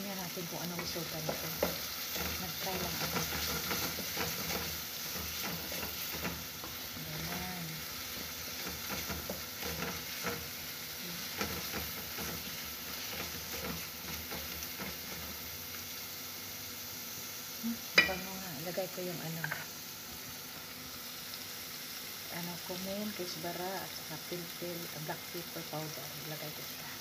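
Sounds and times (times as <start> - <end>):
food sizzling in oil: 0.0 - 27.0.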